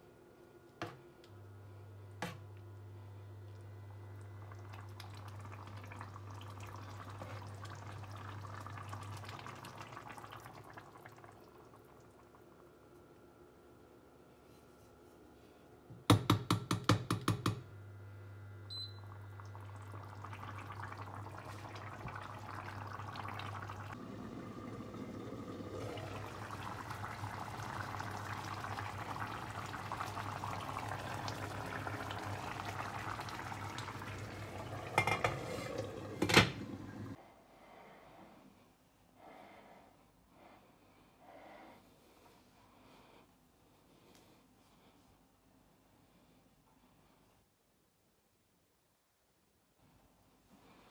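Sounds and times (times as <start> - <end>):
stew bubbling in a pan: 3.6 - 12.6, 18.7 - 37.2
low steady hum: 17.7 - 45.0.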